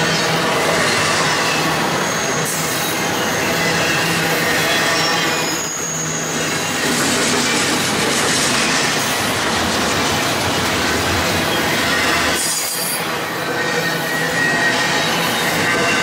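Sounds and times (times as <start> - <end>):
high squeal: 0.0 - 7.7, 11.2 - 16.0
steel wheels rushing on rail: 0.0 - 16.0.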